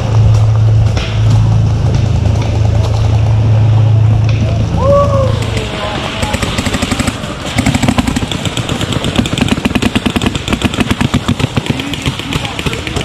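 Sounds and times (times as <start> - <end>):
paintball markers firing: 5.5 - 13.0.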